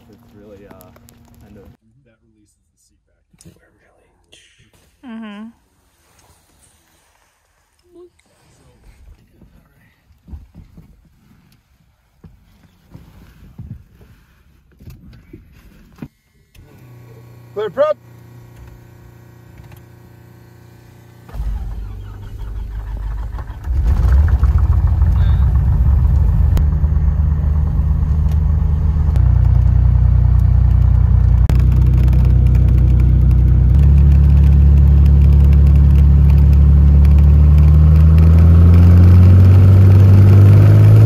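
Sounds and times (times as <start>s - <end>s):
propeller plane engine starting: 16.5s - 41.0s.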